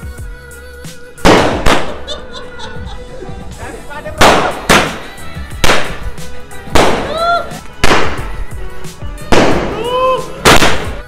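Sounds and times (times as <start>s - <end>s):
firework shots: 1.2s - 2.2s, 4.2s - 8.5s, 9.2s - 11.0s.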